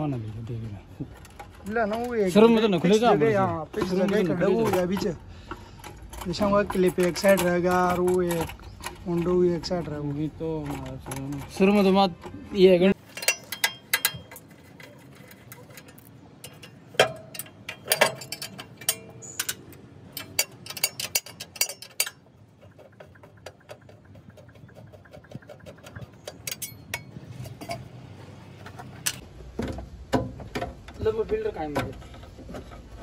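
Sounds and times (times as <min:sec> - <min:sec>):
clicks taps and knocks of hand work: 0:16.4 - 0:27.1.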